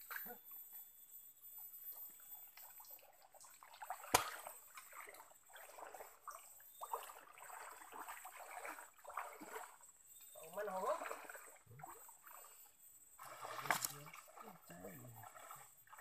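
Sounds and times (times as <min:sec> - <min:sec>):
water trickling: 0:01.8 - 0:16.0
hands sloshing in water: 0:02.7 - 0:12.6, 0:13.2 - 0:16.0.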